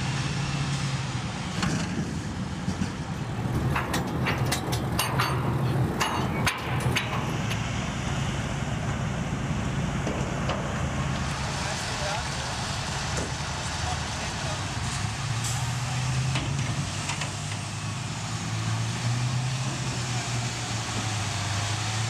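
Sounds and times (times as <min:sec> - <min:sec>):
engine humming: 0:00.0 - 0:22.0
metallic clanks and knocks: 0:02.7 - 0:07.8.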